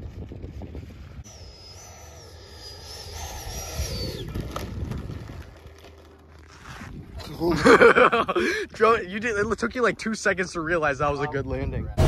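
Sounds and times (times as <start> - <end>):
model jet engine whine: 0.0 - 7.2.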